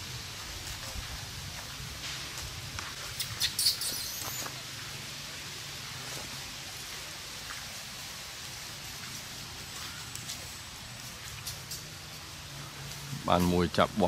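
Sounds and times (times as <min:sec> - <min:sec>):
low rustle of monkeys moving: 0:00.0 - 0:13.7
monkeys squeaking: 0:03.0 - 0:04.6.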